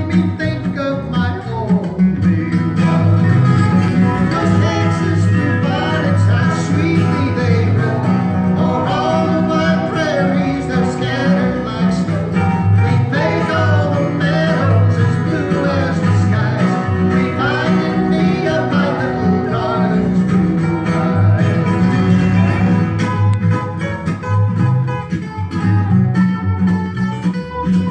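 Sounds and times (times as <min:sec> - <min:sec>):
acoustic bass guitar: 0:00.0 - 0:27.9
slide guitar: 0:00.0 - 0:27.9
strummed acoustic guitar: 0:00.0 - 0:27.9
man and woman singing: 0:04.2 - 0:21.8.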